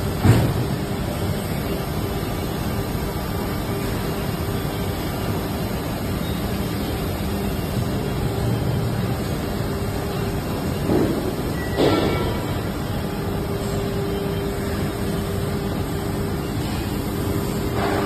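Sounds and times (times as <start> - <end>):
injection moulding machine running: 0.0 - 18.0.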